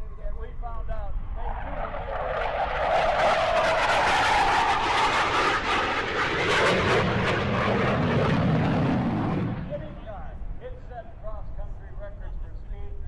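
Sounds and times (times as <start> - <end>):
jet whine falling in pitch: 1.1 - 10.1
jet flyby roar: 1.1 - 11.9.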